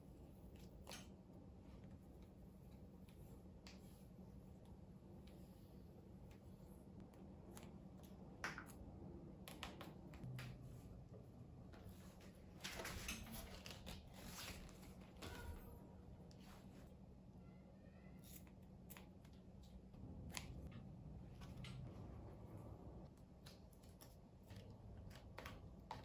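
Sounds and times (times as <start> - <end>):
tape rustling and crackling: 11.7 - 15.7.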